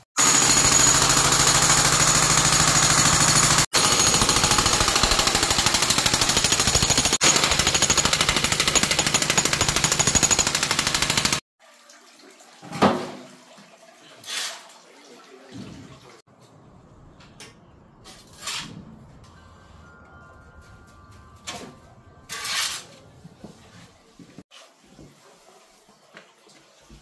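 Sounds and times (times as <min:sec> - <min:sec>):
jackhammer hammering: 0:00.2 - 0:11.4.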